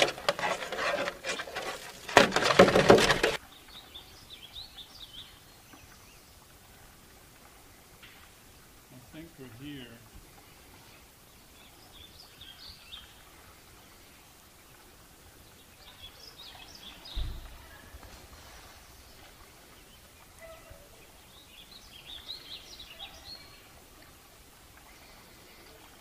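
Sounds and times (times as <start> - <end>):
songbirds chirping: 0.0 - 26.0
low thump: 17.1 - 17.6.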